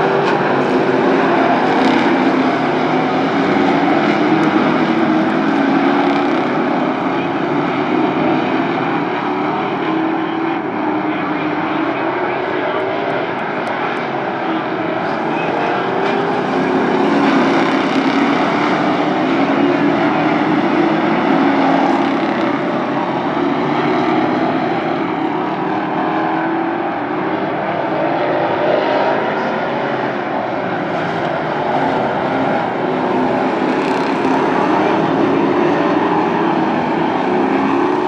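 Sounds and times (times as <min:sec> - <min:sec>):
race car engines droning: 0:00.0 - 0:38.0.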